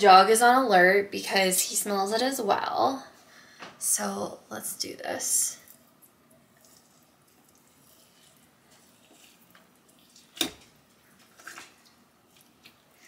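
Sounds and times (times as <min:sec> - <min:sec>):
forks pulling apart wet meat: 0:06.6 - 0:12.8.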